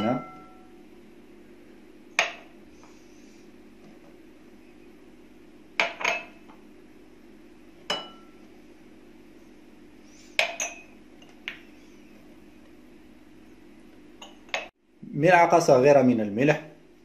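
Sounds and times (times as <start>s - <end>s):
glass clinking against glass bowl: 0.0s - 0.7s, 5.8s - 6.4s, 7.9s - 8.4s, 10.4s - 11.4s, 14.2s - 14.7s
steady low hum: 0.0s - 17.0s.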